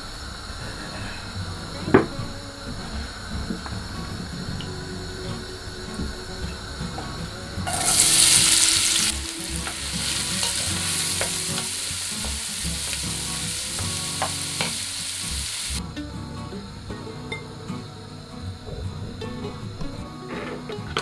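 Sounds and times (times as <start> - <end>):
onions sizzling in hot oil: 7.6 - 15.8.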